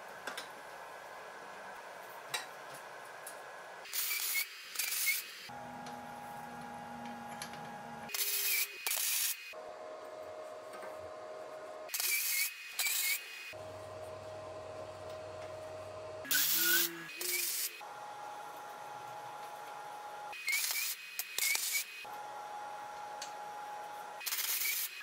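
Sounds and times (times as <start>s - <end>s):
welding arc bursts: 3.9s - 5.5s, 8.1s - 9.6s, 16.3s - 17.8s, 20.4s - 22.0s, 24.2s - 25.0s.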